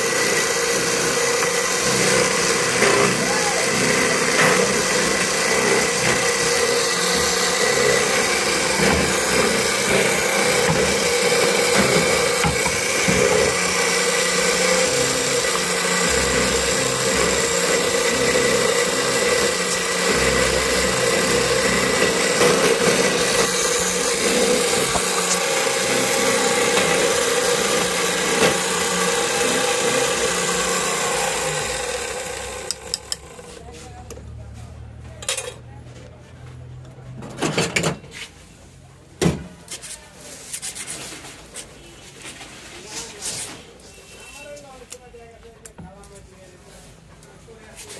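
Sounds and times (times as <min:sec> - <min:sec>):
key-cutting machine milling a key: 0:00.0 - 0:33.4.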